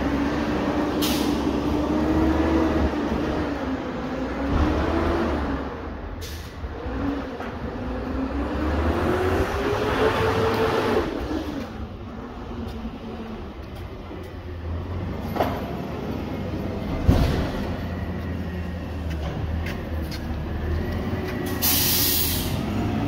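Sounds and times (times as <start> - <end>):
garbage truck engine rumbling: 0.0 - 23.0
air hisses: 21.5 - 22.6.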